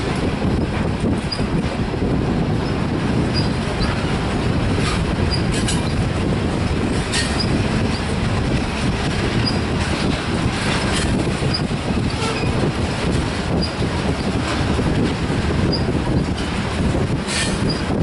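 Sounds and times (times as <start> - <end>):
train wheels rumbling on rail: 0.0 - 18.0
high wheel squeaks: 0.5 - 1.6, 2.6 - 6.0, 6.9 - 8.2, 9.0 - 14.7, 15.6 - 16.6, 17.2 - 18.0.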